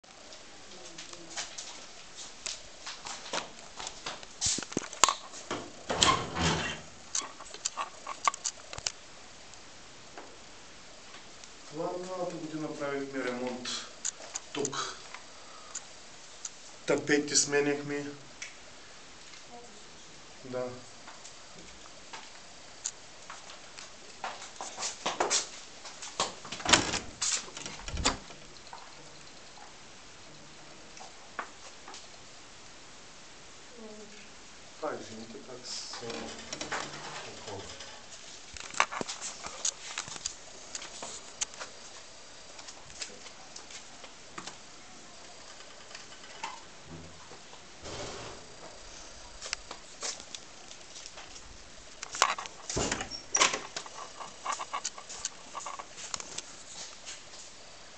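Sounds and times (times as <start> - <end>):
footsteps: 0.0 - 6.0, 23.2 - 29.0, 35.9 - 44.6, 47.2 - 57.5
door thud: 26.5 - 28.4, 52.7 - 53.7.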